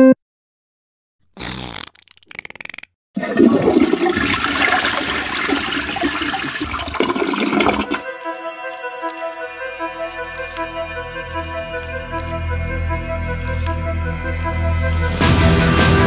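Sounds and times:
short rough noises: 1.3 - 3.0
toilet flushing: 3.2 - 8.1.

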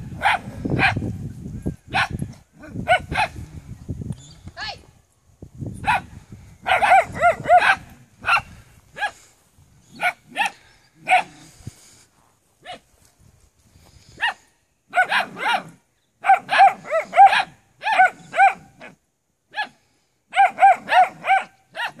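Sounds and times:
puppies barking high-pitched yaps: 0.1 - 1.0, 1.9 - 2.2, 2.8 - 3.4, 5.8 - 9.2, 10.0 - 11.4, 14.2 - 18.9, 19.5 - 22.0.

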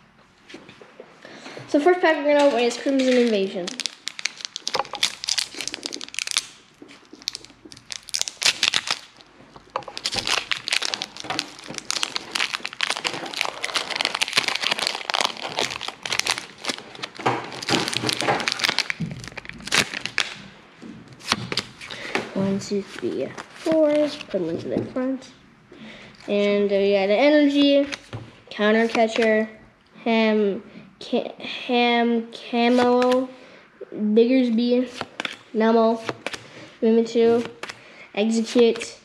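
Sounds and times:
foil wrapper crinkling and tearing: 2.6 - 20.4.

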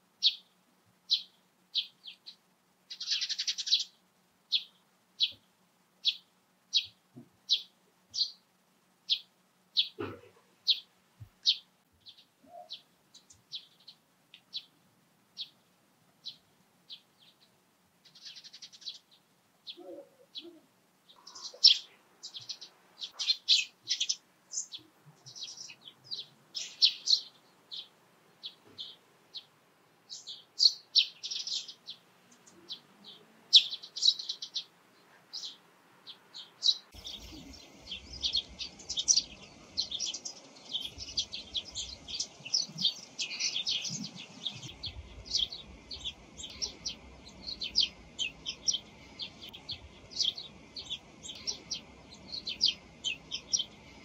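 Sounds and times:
sparrows chirping: 0.0 - 54.0
low background rumble: 37.0 - 54.0.

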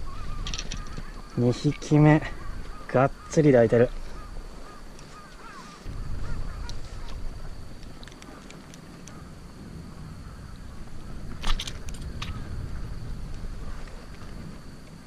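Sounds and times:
faint squeaky calls: 0.0 - 7.3
handling clicks and rustles: 0.4 - 2.0
low rumble: 5.9 - 15.0.

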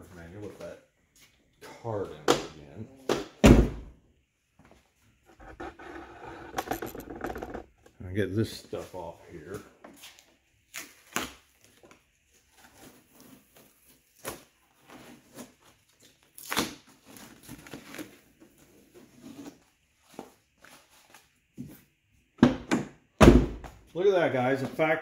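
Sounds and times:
tape and cardboard tearing: 10.7 - 11.9, 12.6 - 18.2.

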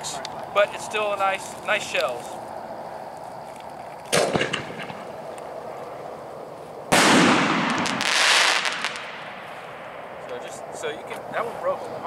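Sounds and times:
firework shell bursting with crackle: 3.7 - 5.2, 6.9 - 10.4
firework launch thump: 6.9 - 9.3.

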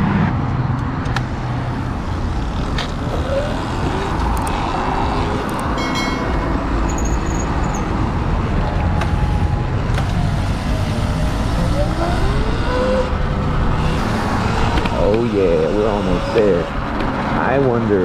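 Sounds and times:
street traffic: 0.0 - 18.0
wind and road noise: 0.0 - 18.0
high-pitched tone: 5.6 - 7.9.

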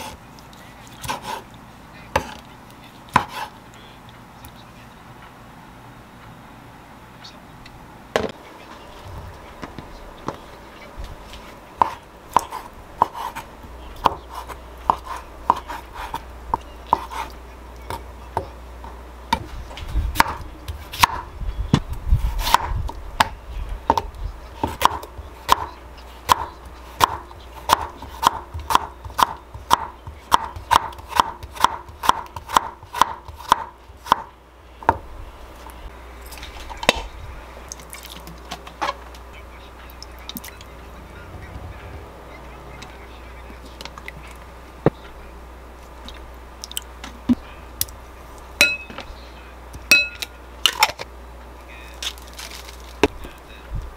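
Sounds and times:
knife chopping on wooden board: 1.0 - 1.4, 3.1 - 3.5, 26.3 - 34.3.

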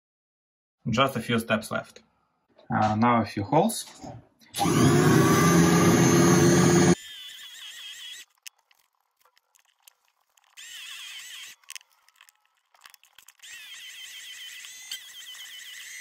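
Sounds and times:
drill bit squealing into metal: 4.6 - 8.5, 10.5 - 12.1, 13.0 - 16.0.

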